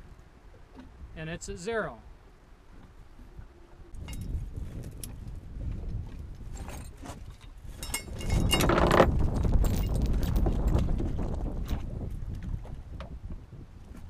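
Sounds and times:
wind on microphone: 2.7 - 14.0
metal chain clinking: 6.6 - 10.6.

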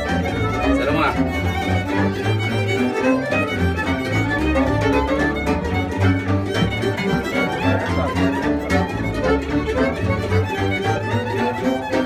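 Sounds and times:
violin melody: 0.0 - 12.0
pulsing low bass line: 3.8 - 10.9.

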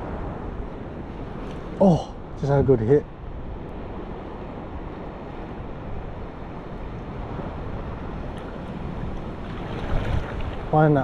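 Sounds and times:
wind on microphone: 0.0 - 11.0
small waves washing: 3.9 - 11.0.

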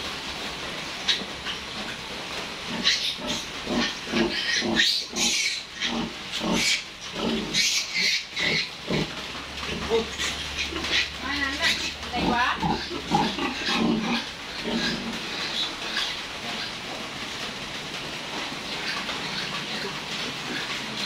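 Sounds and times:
pigs grunting and squealing: 2.7 - 16.9, 18.6 - 21.0.

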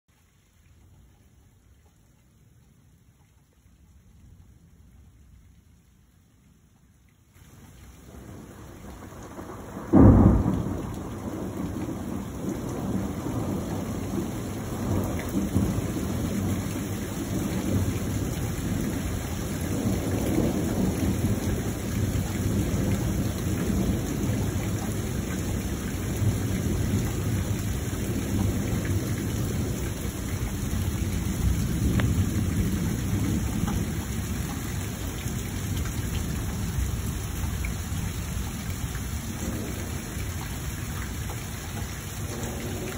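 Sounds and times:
rain hissing: 4.2 - 42.9
rolling thunder rumble: 7.9 - 40.4
thunder crack: 8.2 - 16.5.

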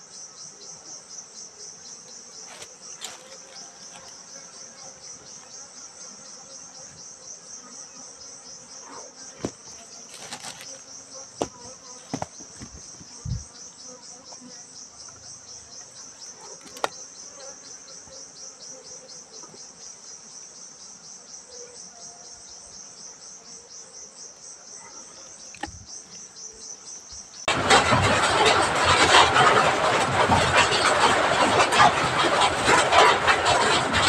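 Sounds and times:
cricket chirping trill: 0.0 - 34.0.

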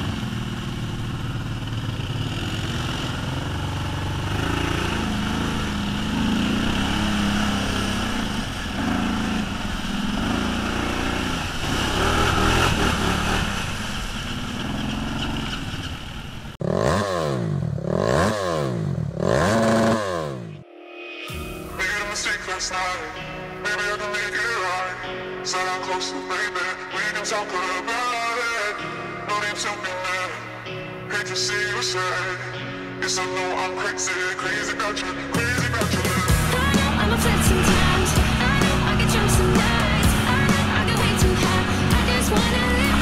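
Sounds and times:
electronic sweeping effect: 0.0 - 16.5, 20.5 - 25.0, 36.0 - 43.0
quad bike engine revving: 0.0 - 20.6, 35.4 - 43.0.

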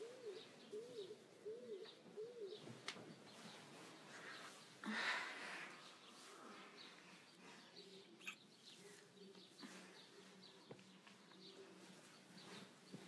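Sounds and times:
faint bird chirps: 5.8 - 13.0.

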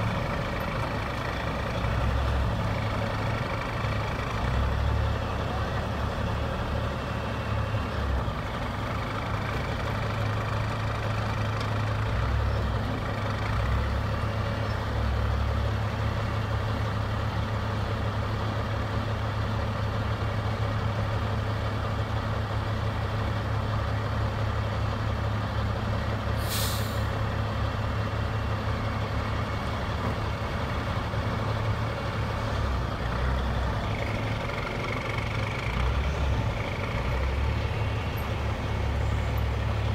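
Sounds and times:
diesel engines running under load: 0.0 - 39.9
air hiss: 26.4 - 27.1.

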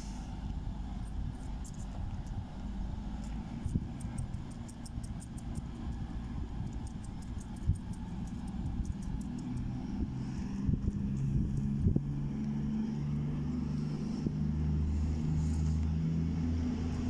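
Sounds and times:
distant diesel train rumble: 0.0 - 17.0.

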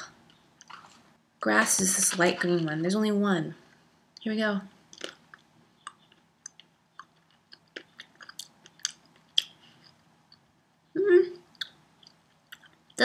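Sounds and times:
person chewing with small clicks: 4.9 - 10.5, 11.5 - 13.0.

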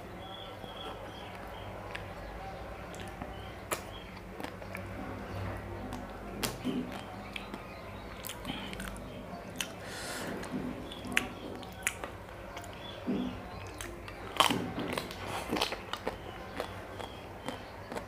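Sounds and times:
wet mouth noises and chewing: 2.9 - 4.9, 5.9 - 18.0.

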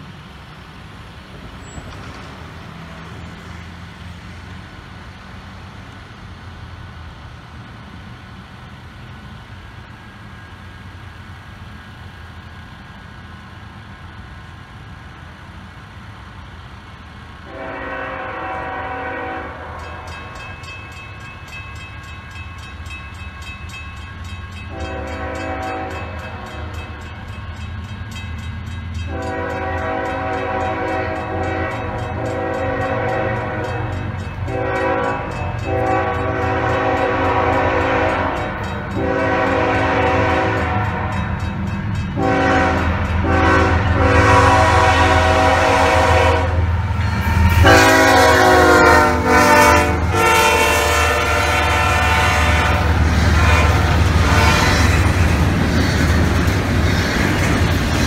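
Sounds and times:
diesel locomotive rumble: 0.0 - 58.0
train horn blasts: 17.4 - 20.4, 24.7 - 27.0, 29.1 - 41.5, 42.1 - 55.2.

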